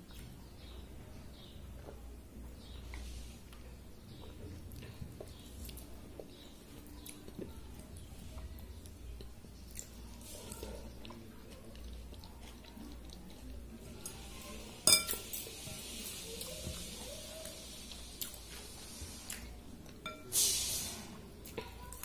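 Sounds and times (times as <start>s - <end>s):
clink against bowl: 14.9s - 15.2s, 20.0s - 20.3s.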